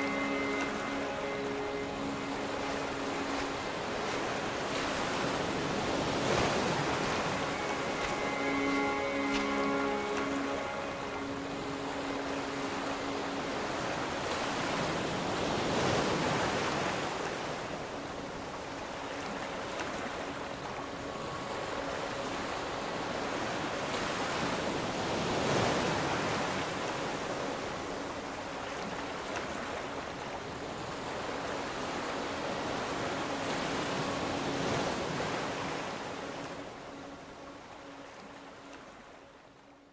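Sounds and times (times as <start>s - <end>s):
sea waves breaking on beach: 0.0s - 39.6s.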